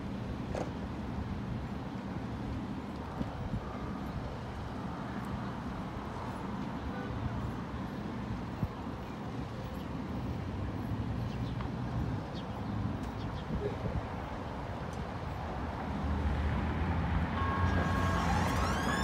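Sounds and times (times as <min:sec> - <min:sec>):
city traffic: 0:00.0 - 0:19.0
train humming: 0:17.2 - 0:19.0.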